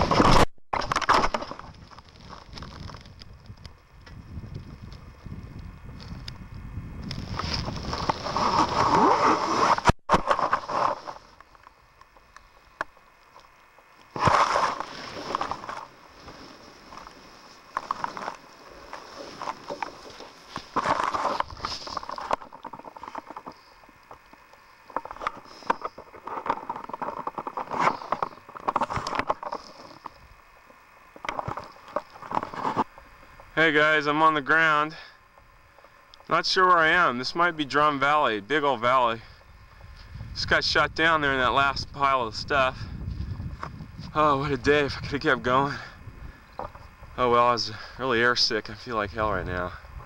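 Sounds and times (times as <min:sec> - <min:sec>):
grass rustling against camera: 0:00.0 - 0:50.0
wind rushing over microphone: 0:01.6 - 0:09.9, 0:39.6 - 0:47.2.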